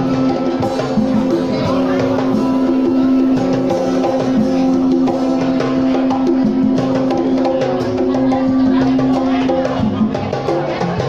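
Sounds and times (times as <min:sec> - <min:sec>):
low held note: 0:00.0 - 0:09.9
guitar playing: 0:00.0 - 0:10.2
drum beat: 0:00.0 - 0:11.0.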